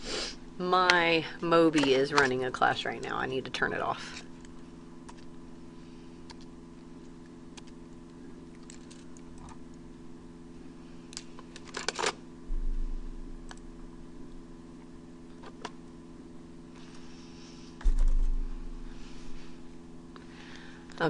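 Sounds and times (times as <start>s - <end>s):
electrical hum: 0.0s - 21.0s
low thump: 12.5s - 13.4s, 17.8s - 19.0s.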